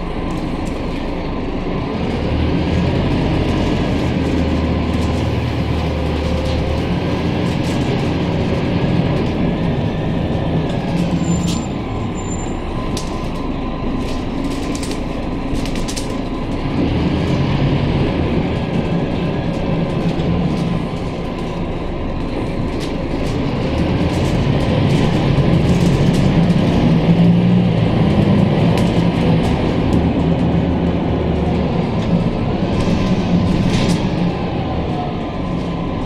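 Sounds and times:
bus diesel engine: 0:00.0 - 0:36.0
road noise: 0:00.0 - 0:36.0
interior rattles and clicks: 0:12.8 - 0:36.0.

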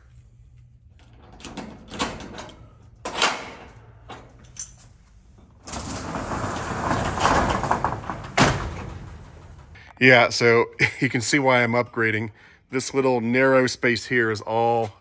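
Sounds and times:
metal roll-up door rattling: 0:01.0 - 0:04.8, 0:05.4 - 0:09.8.

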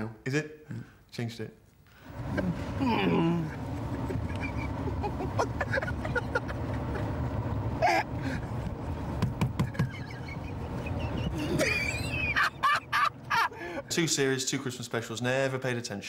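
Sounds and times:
car engine and road noise: 0:02.0 - 0:13.9.

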